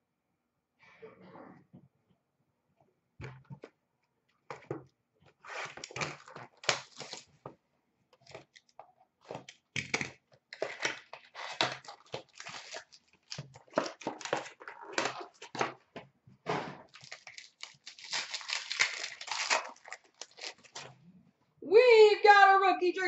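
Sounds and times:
packaging tearing and crinkling: 0:05.5 - 0:07.4, 0:09.3 - 0:15.6, 0:16.8 - 0:21.0.

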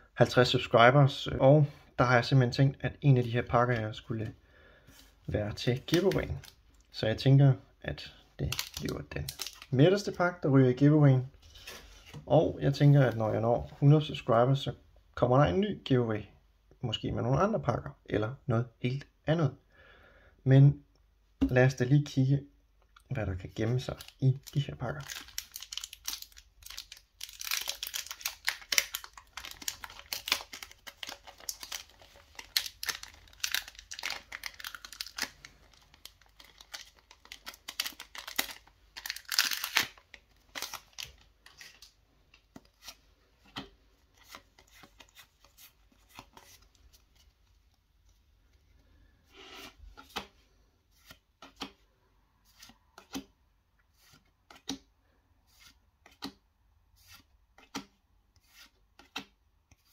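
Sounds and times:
cards clicking and rustling: 0:05.8 - 0:06.6, 0:08.4 - 0:09.7, 0:23.9 - 0:47.6
foil wrapper crinkling and tearing: 0:08.5 - 0:09.7, 0:23.9 - 0:41.9.

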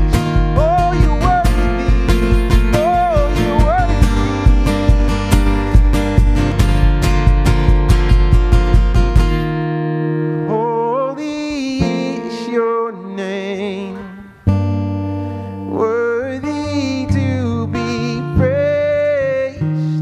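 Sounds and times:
man singing: 0:00.0 - 0:06.1, 0:10.4 - 0:14.6, 0:15.5 - 0:20.0
acoustic guitar strumming: 0:00.0 - 0:20.0.

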